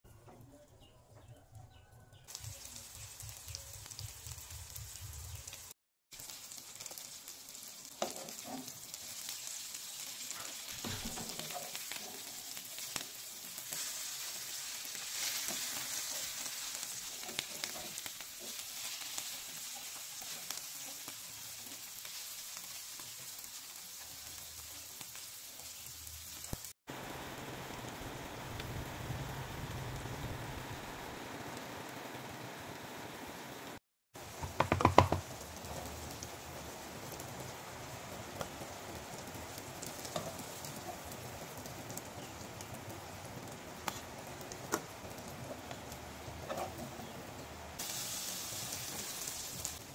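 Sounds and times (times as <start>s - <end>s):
patties sizzling in hot oil: 2.1s - 49.9s
rain falling: 26.1s - 46.4s.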